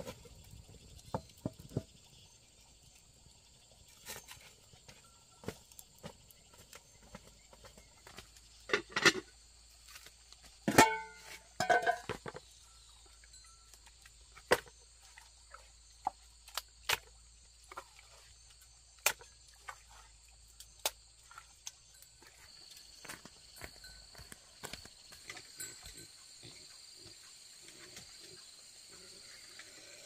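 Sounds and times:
insects droning: 0.0s - 30.0s
pot lid clanging: 10.7s - 12.2s.

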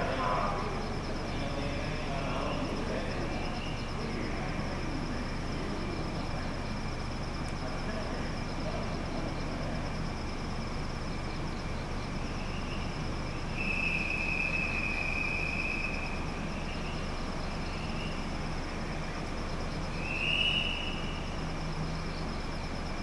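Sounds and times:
electric train humming: 0.0s - 23.0s.

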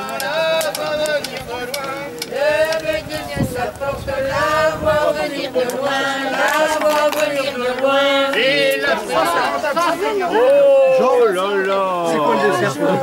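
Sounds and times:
folk music over a drone: 0.0s - 10.2s
voices: 0.0s - 13.0s.

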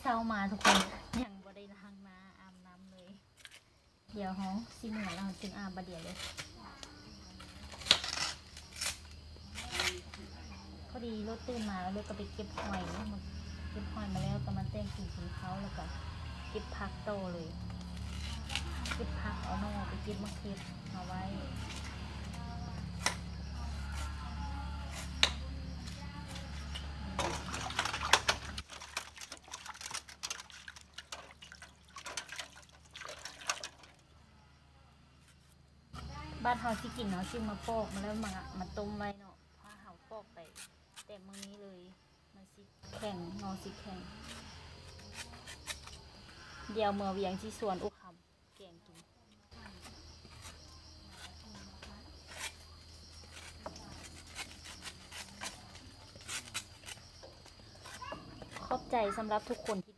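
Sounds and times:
bamboo shoot being peeled: 3.3s - 3.7s, 5.2s - 10.4s, 17.0s - 34.1s, 42.9s - 46.3s, 48.5s - 59.9s.

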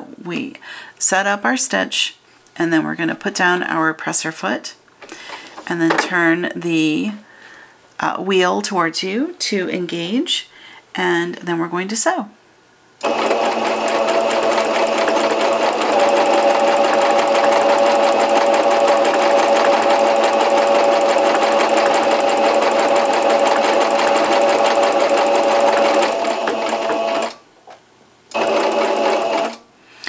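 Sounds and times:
sewing machine running: 13.0s - 27.4s, 28.3s - 29.6s.

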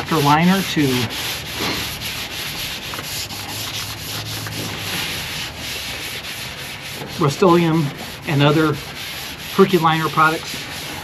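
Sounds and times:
scrubbing pad on painted steel: 0.0s - 11.0s.

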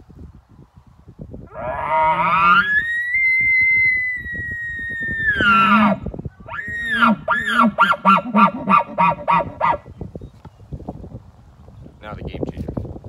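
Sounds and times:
elk bugle call: 5.3s - 9.8s.

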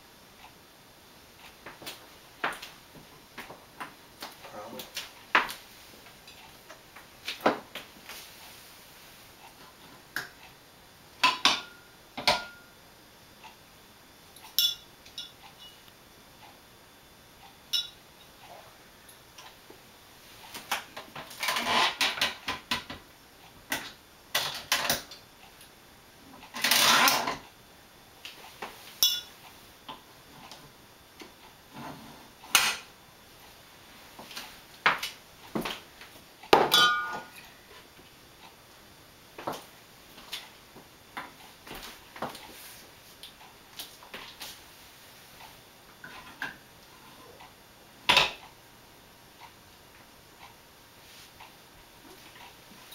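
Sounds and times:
glass bottles clinking: 36.7s - 37.4s.

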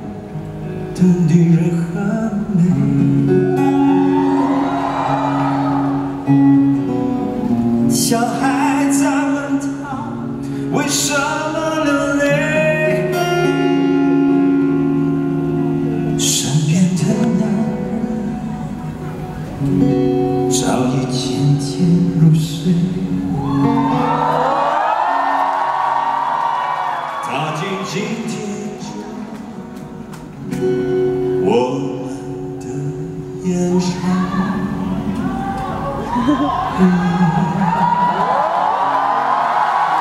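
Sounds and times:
acoustic guitar: 0.0s - 40.0s
man singing into microphone: 0.8s - 5.5s, 7.9s - 14.0s, 16.1s - 19.0s, 20.4s - 23.9s, 27.2s - 29.9s, 31.4s - 38.4s.

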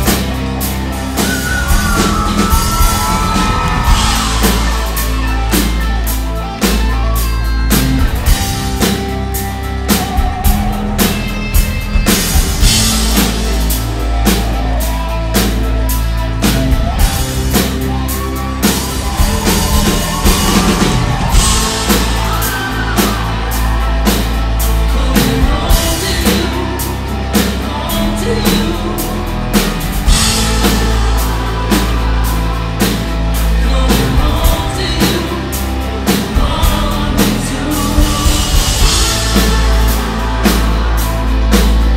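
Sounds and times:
bass guitar: 0.0s - 41.9s
drum kit beat: 0.0s - 41.9s
electric guitar: 0.0s - 41.9s
man singing: 24.6s - 41.9s.

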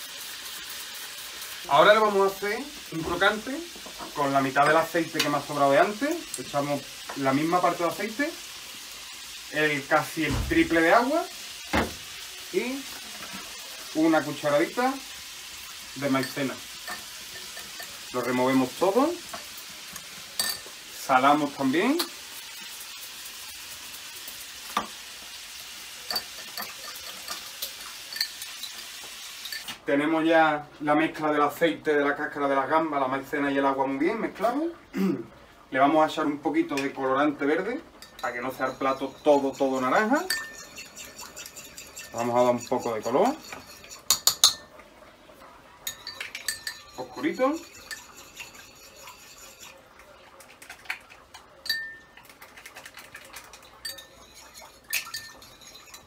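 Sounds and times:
spoon clinking against bowl: 16.2s - 18.0s, 20.4s - 20.7s, 26.1s - 28.8s, 38.0s - 44.7s, 45.8s - 49.8s, 51.6s - 52.2s, 53.6s - 56.0s.

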